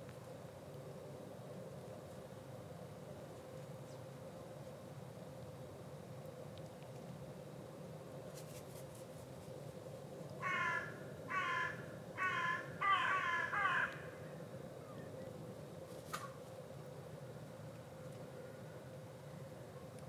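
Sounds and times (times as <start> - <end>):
crow cawing: 10.4 - 14.3.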